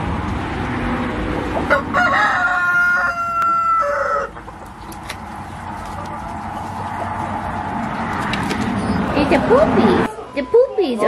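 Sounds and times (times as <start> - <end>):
rooster crowing: 1.7 - 4.5.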